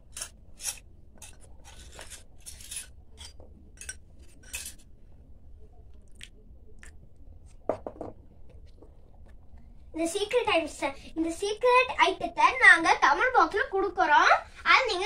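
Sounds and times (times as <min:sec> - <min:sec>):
metal spoon scraping steel bowl: 0:00.0 - 0:04.9.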